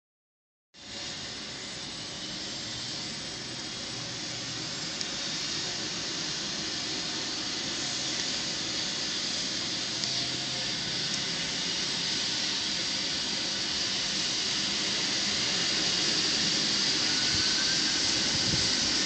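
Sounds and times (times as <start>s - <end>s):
helicopter turbine whine and rotor: 0.8s - 19.0s.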